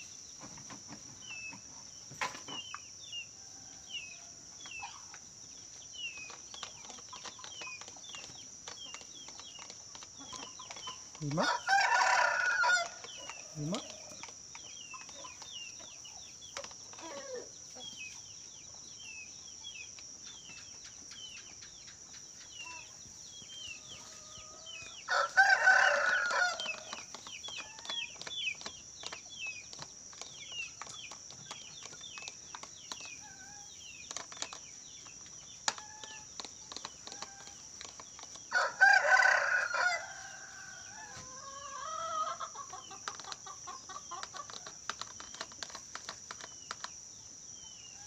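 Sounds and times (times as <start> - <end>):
rooster crowing: 11.3 - 13.0, 23.9 - 26.9, 38.5 - 42.5.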